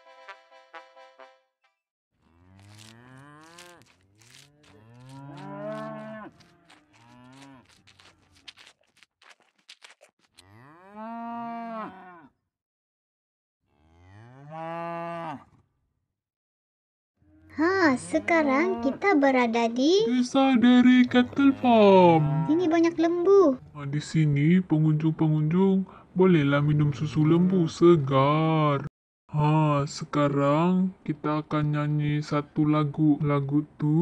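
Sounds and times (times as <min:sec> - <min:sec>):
cattle mooing: 0:02.2 - 0:08.4, 0:10.4 - 0:12.3, 0:21.2 - 0:22.9.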